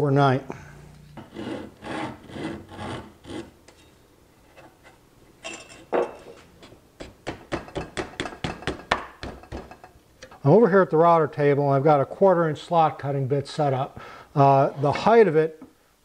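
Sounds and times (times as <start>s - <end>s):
hand file rasping on wood: 1.2s - 3.5s.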